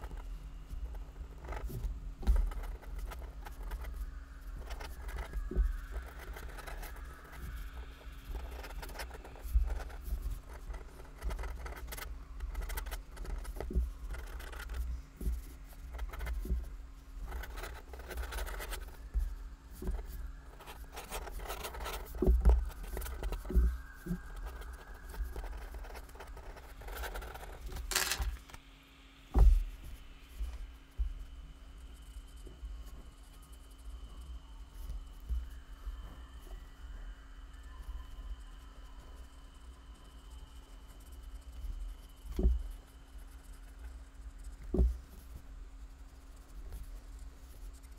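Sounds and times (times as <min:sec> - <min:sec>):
pen scratching on paper: 0:00.8 - 0:03.9, 0:04.6 - 0:05.4, 0:06.0 - 0:07.4, 0:08.3 - 0:16.5, 0:17.2 - 0:19.0, 0:19.8 - 0:28.3, 0:46.4 - 0:47.9.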